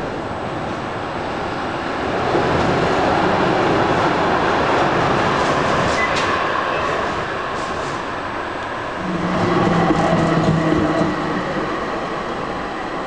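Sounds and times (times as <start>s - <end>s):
tram wheels rumbling on rails: 0.0s - 13.0s
high squeal: 9.0s - 12.0s.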